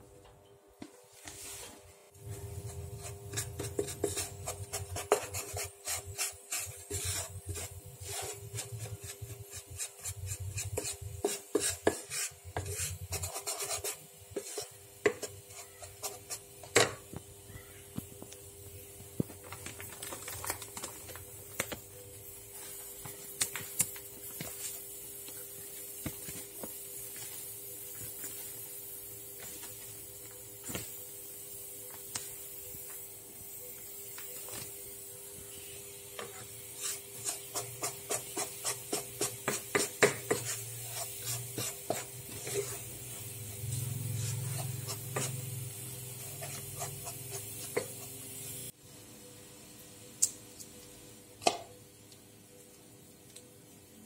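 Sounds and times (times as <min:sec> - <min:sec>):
spatula scraping pan: 0:02.4 - 0:16.9, 0:36.2 - 0:42.9.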